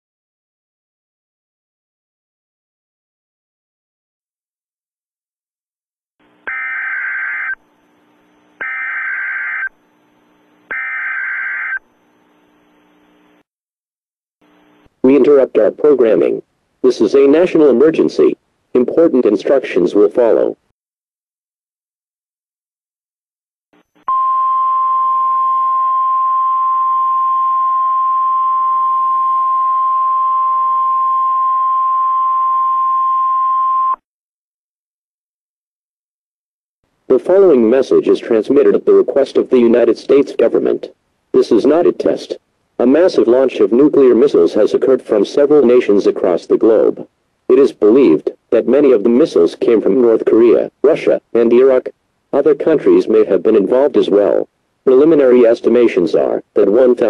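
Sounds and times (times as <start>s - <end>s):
faint steady hum: 6.2s - 13.5s, 14.4s - 20.7s, 23.8s - 33.6s
radio static hiss: 6.4s - 13.4s, 14.4s - 16.4s
high digital data tones: 6.5s - 7.6s, 8.6s - 9.7s, 10.7s - 11.8s.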